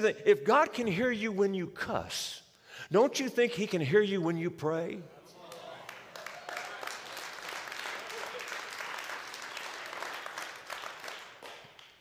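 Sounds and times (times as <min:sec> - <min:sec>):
crowd applauding: 0:05.4 - 0:12.0.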